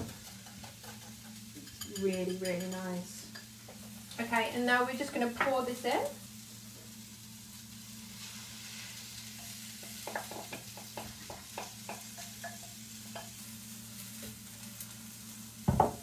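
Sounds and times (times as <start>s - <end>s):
vegetables sizzling in a frying pan: 0.0s - 16.0s
spoon scraping and tapping a bowl: 0.1s - 3.5s, 9.4s - 13.4s.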